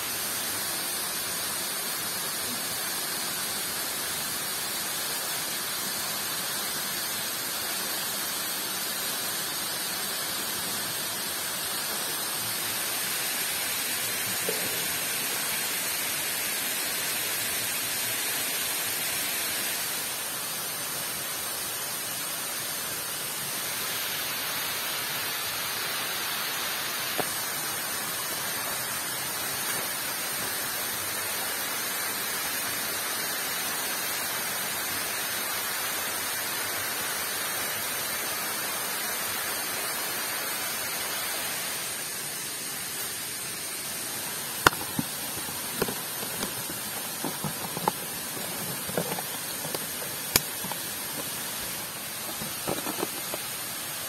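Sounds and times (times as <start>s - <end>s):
falling water hissing: 0.0s - 54.0s.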